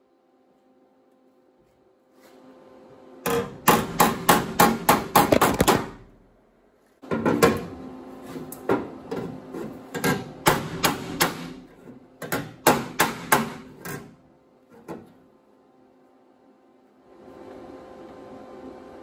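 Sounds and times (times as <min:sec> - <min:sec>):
hammer striking sheet metal: 0:03.3 - 0:06.1, 0:10.0 - 0:11.7, 0:12.3 - 0:13.7.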